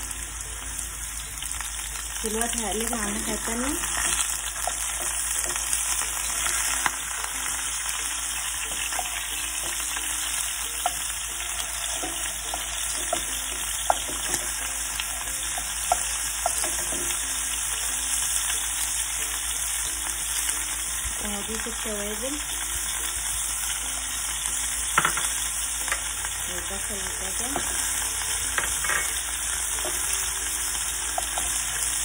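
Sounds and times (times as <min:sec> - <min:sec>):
meat sizzling in a frying pan: 0:00.0 - 0:32.0
wooden spoon turning meat: 0:02.7 - 0:17.4.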